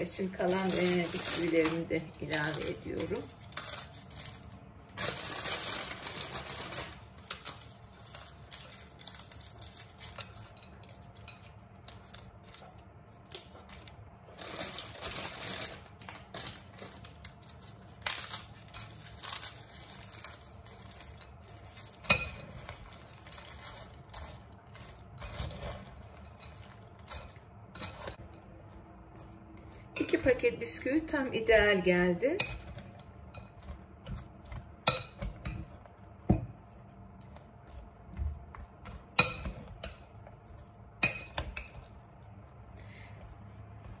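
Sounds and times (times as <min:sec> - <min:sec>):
stirring soft mix: 0:00.0 - 0:44.0.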